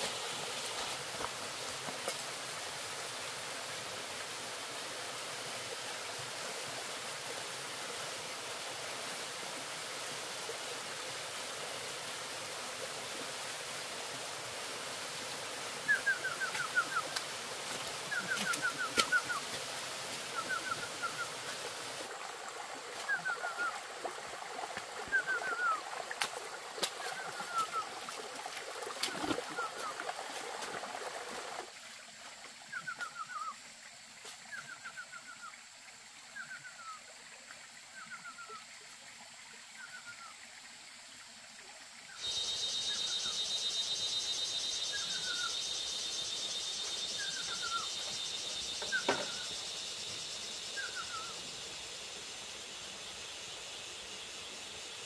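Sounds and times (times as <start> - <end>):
running stream water: 0.0 - 55.0
high insect drone: 42.2 - 55.0.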